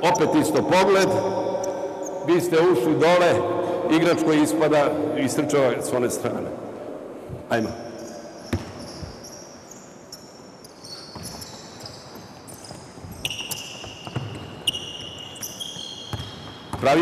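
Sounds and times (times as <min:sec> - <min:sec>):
basketball shoes squeaking: 0:08.0 - 0:17.0
basketball bouncing: 0:08.5 - 0:08.8, 0:12.7 - 0:14.7, 0:16.1 - 0:16.9.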